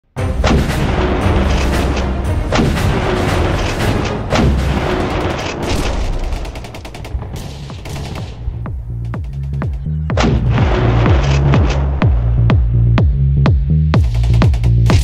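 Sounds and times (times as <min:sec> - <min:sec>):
cinematic music: 0:00.0 - 0:15.0
deep explosion booms: 0:00.2 - 0:01.5, 0:02.2 - 0:09.0, 0:10.1 - 0:12.8
gunfire: 0:00.3 - 0:08.6, 0:10.2 - 0:12.4.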